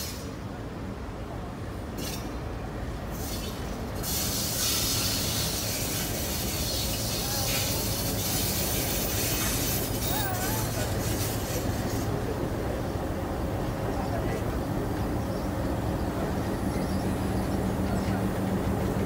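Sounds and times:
diesel locomotive engine humming: 0.0 - 19.0.

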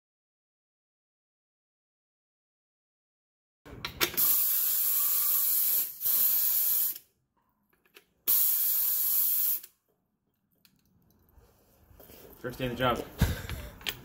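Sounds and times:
spray gun hissing: 4.2 - 7.0, 8.3 - 9.7.

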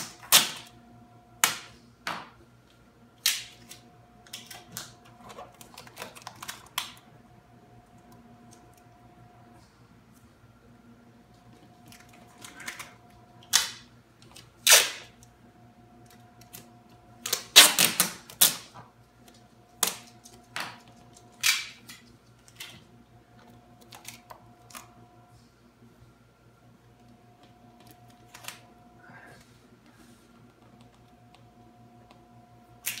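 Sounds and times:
tape ripping: 11.9 - 15.2, 17.2 - 18.7.

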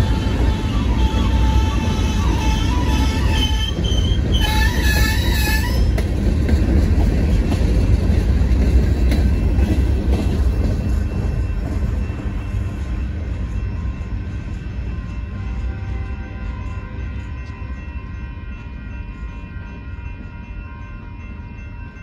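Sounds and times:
high-pitched wheel squeal: 0.0 - 6.0
freight train wheels rumbling: 0.0 - 22.0.

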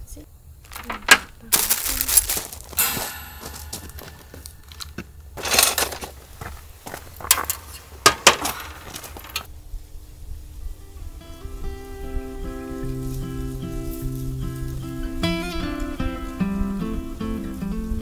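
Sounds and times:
metal gear clanking: 2.0 - 6.0
plucked guitar music: 11.0 - 18.0.

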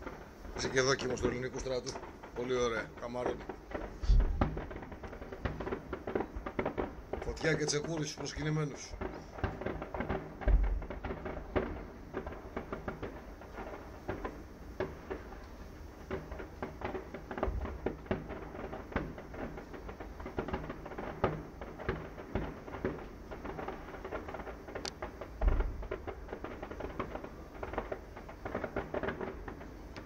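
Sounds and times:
distant fireworks popping: 0.0 - 30.0
deep thud: 3.8 - 4.8, 10.4 - 11.8, 25.4 - 26.0.

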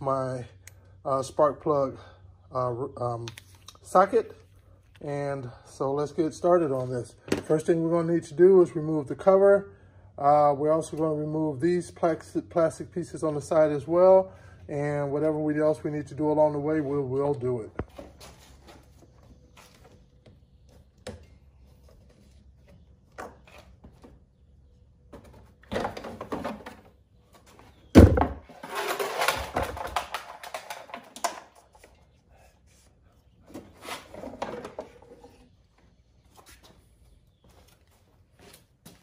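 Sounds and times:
plastic rattling and scraping: 28.2 - 31.8.

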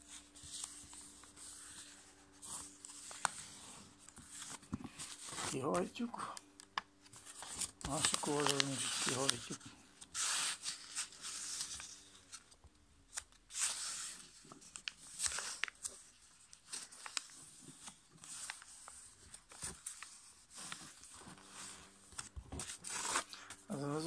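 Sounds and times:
paper rustling and crinkling: 0.0 - 24.0
fingers clicking along paper folds: 6.3 - 9.6, 14.5 - 20.8.

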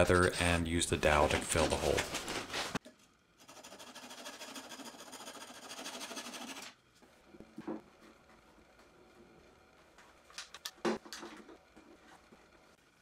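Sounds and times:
hand saw cutting wood: 3.5 - 6.7.

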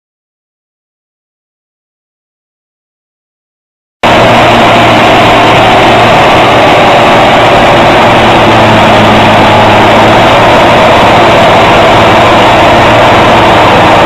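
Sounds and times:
tractor diesel engine running hard: 4.0 - 14.0.

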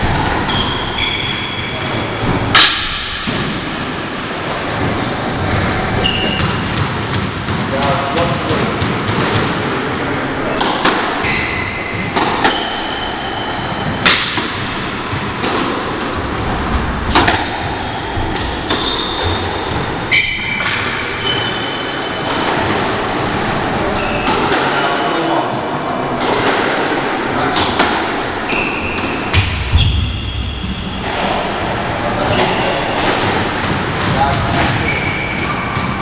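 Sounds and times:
squash ball hits: 0.0 - 3.9, 4.5 - 9.8, 10.5 - 23.2, 23.9 - 25.0, 26.2 - 36.0
shoes squeaking on wooden floor: 6.0 - 6.7, 18.6 - 24.5, 34.2 - 36.0.

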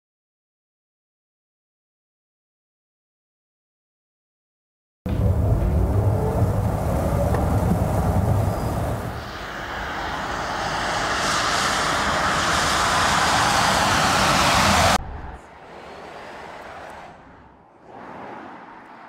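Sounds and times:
road rumble inside car cabin: 5.1 - 9.5
electric motor whine: 5.1 - 15.0
tyres hissing on wet road: 5.2 - 15.0.

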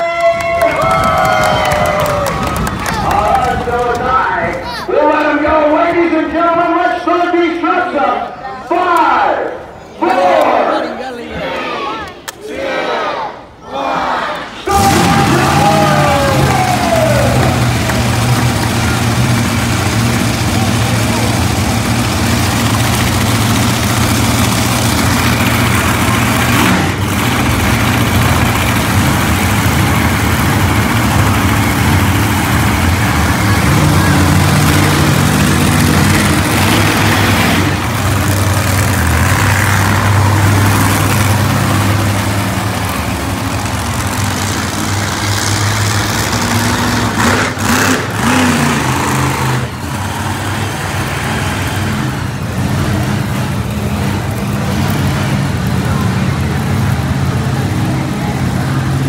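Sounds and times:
monster truck engines idling: 0.0 - 11.1, 13.1 - 59.0.

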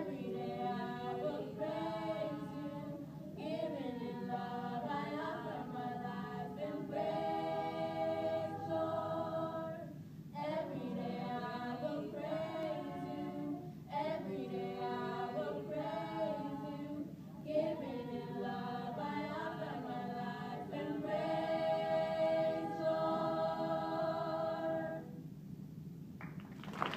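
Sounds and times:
small choir singing a cappella: 0.0 - 25.3.

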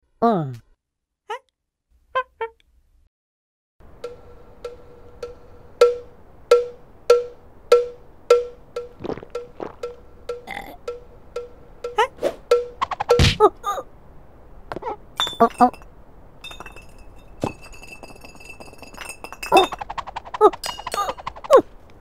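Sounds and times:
mallet tapping metal: 4.0 - 13.4.

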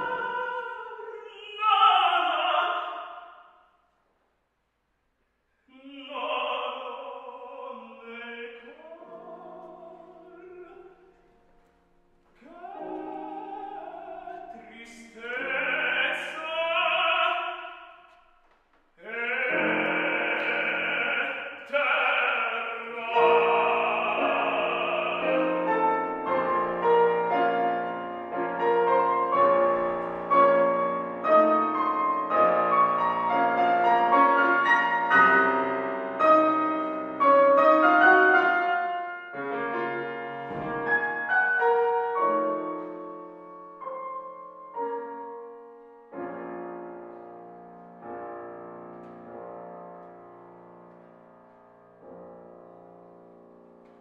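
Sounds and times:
piano accompaniment: 0.0 - 3.2, 6.0 - 54.0
man singing opera: 0.0 - 3.5, 5.6 - 11.2, 12.4 - 18.2, 19.0 - 27.5.

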